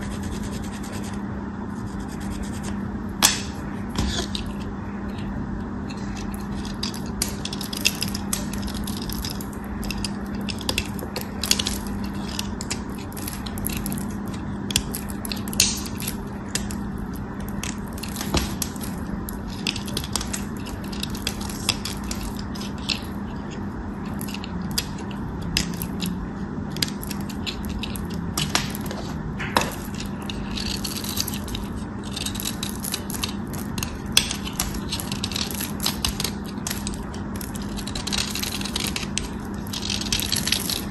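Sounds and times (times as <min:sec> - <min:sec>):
knife cutting soap crackling: 0:26.8 - 0:37.0.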